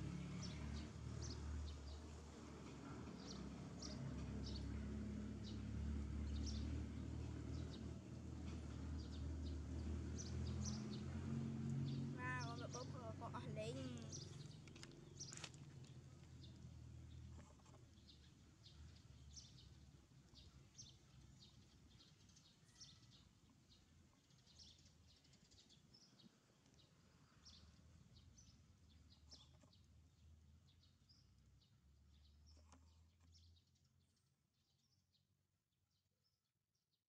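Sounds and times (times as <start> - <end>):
birds chirping: 8.7 - 33.8.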